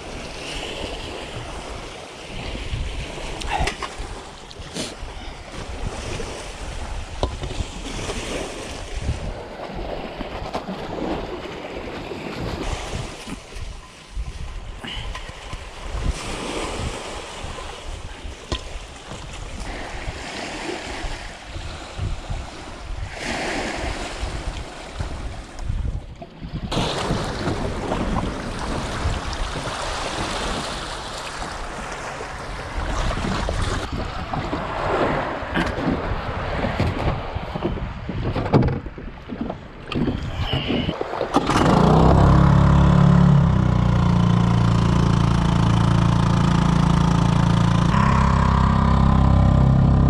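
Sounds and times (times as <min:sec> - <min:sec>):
sea waves washing on shore: 0:00.0 - 0:38.2, 0:38.9 - 0:50.0
wind buffeting microphone: 0:00.0 - 0:50.0
low rumble: 0:41.8 - 0:50.0.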